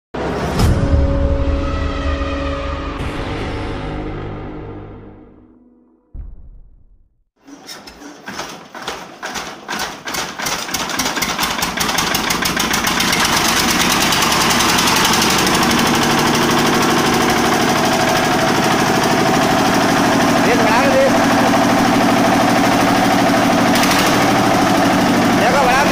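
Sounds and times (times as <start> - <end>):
small diesel engine starting: 7.4 - 25.9.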